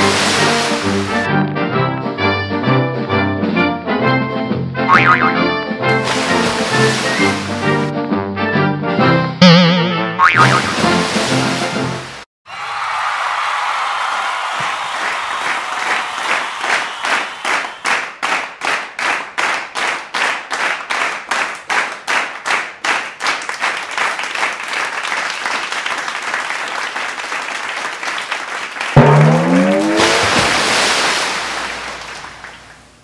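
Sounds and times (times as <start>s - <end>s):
falling water rushing: 0.0s - 1.3s, 6.0s - 7.9s, 10.4s - 12.2s, 29.0s - 32.8s
splash of animal diving into water: 0.0s - 1.3s, 6.0s - 7.9s, 10.3s - 12.0s, 29.0s - 32.7s
audience clapping in rhythm: 13.3s - 30.4s, 31.5s - 33.0s
loud thump: 29.0s - 30.8s.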